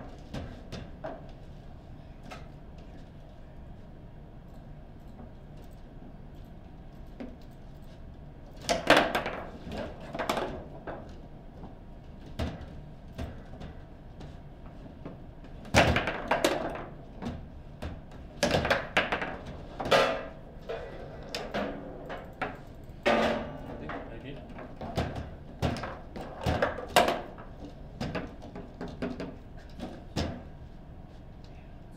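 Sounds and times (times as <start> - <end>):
table football knocks and clacks: 8.6 - 11.2, 15.0 - 20.3, 21.4 - 30.5.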